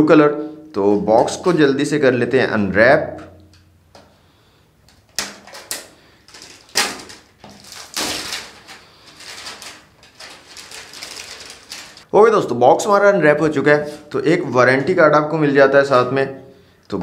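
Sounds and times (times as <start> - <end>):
plastic wrap crackling and tearing: 5.2 - 12.1.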